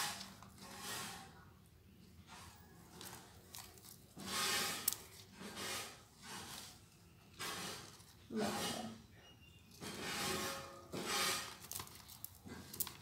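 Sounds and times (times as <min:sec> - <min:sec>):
beads rustling and rubbing: 0:02.2 - 0:09.0, 0:09.6 - 0:13.0.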